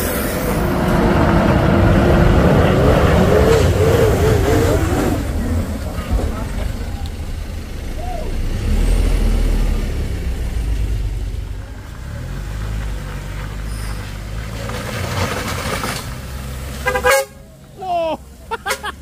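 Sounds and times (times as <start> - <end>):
road noise: 0.0 - 19.0
truck diesel engine passing: 0.0 - 19.0.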